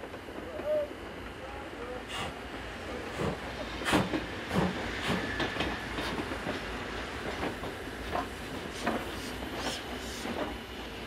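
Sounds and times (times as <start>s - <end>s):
train wheels clattering over rails: 3.1s - 11.0s.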